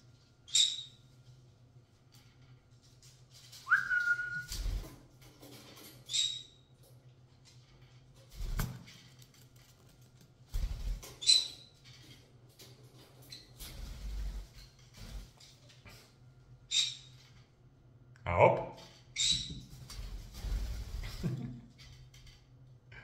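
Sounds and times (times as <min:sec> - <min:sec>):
parrot chirping: 0:00.5 - 0:01.0
wings fluttering: 0:02.9 - 0:06.0, 0:08.2 - 0:12.2, 0:12.9 - 0:15.7, 0:19.6 - 0:22.3
parrot rising whistle: 0:03.7 - 0:04.5.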